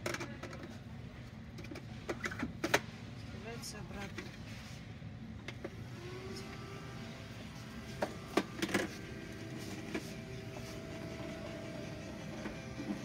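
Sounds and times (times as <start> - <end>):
robot vacuum motor whine: 5.8 - 13.0.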